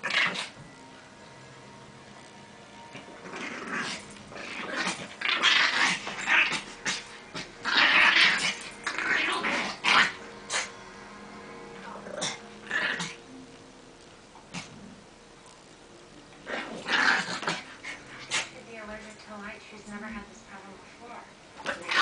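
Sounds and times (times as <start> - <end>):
dogs growling: 0.0 - 0.6, 2.8 - 10.8, 11.8 - 13.3, 14.4 - 15.1, 16.4 - 18.6, 21.6 - 22.0.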